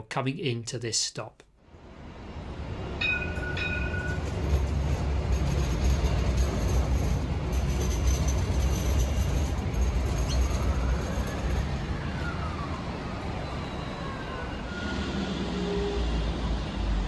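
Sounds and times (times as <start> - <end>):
tram running low rumble: 1.7 - 17.0.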